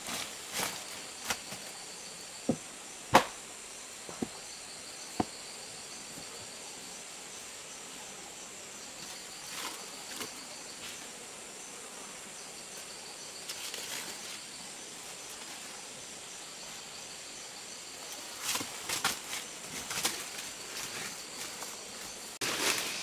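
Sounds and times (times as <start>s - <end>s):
rustling in dry leaves: 0.0s - 1.8s, 13.4s - 14.5s, 18.1s - 23.0s
high insect drone: 0.0s - 23.0s.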